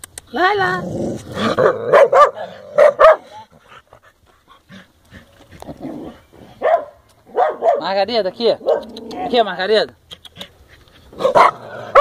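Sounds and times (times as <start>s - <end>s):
dog barking: 1.6s - 3.3s, 6.6s - 7.9s, 8.6s - 8.9s, 11.2s - 12.0s.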